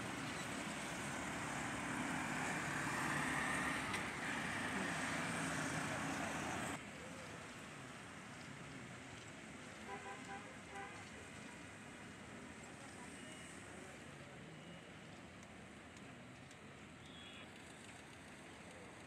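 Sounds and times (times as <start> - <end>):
truck engine: 0.0 - 6.9
auto-rickshaw engine: 0.0 - 19.0
road noise: 0.0 - 19.0.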